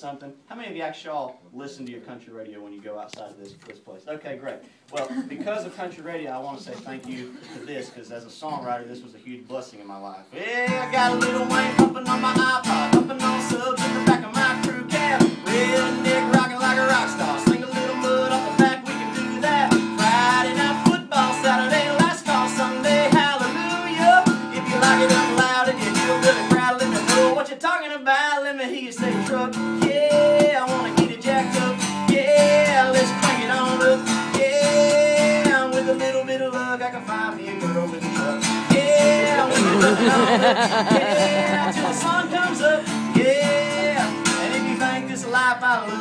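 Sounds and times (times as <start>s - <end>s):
acoustic guitars strumming: 10.4s - 27.5s, 28.4s - 46.0s.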